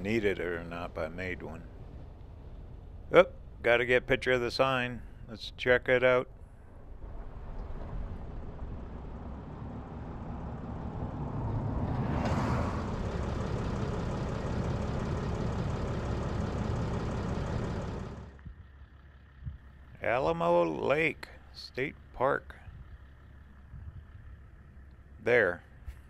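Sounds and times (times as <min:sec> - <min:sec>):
engine idling: 0:00.0 - 0:05.4, 0:06.3 - 0:26.0.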